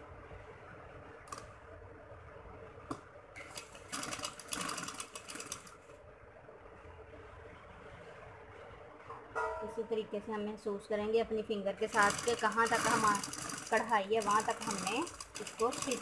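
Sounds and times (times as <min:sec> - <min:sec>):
sewing machine stitching: 0:03.4 - 0:05.8, 0:11.8 - 0:16.0.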